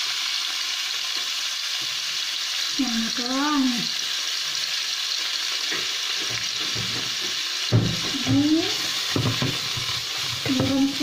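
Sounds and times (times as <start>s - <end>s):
pork sizzling in oil: 0.0s - 11.0s
knocks on pan: 5.7s - 10.8s.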